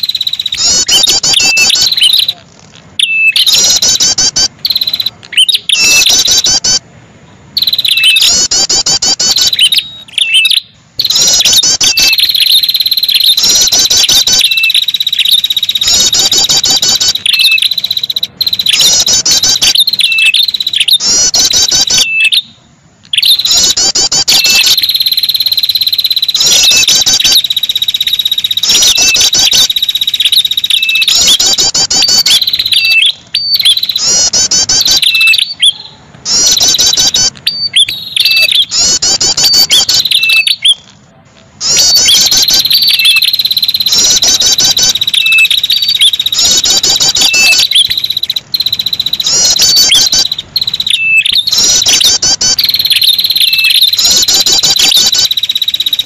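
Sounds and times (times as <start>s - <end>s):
bird song with trilled notes: 0.0s - 6.8s, 7.6s - 41.0s, 41.6s - 56.0s
steady high whistle: 23.3s - 40.6s.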